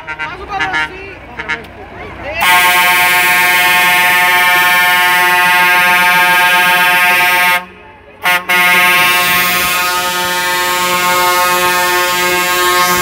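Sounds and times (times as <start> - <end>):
truck air horn blowing: 0.0 - 1.7, 2.4 - 13.0.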